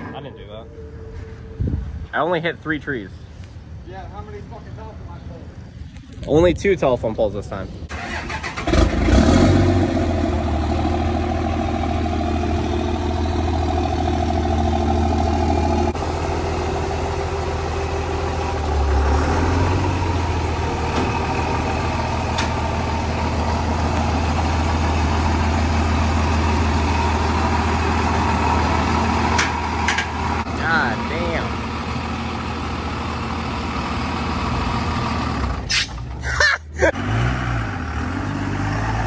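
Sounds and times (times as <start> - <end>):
pickup truck engine idling: 10.2 - 18.7.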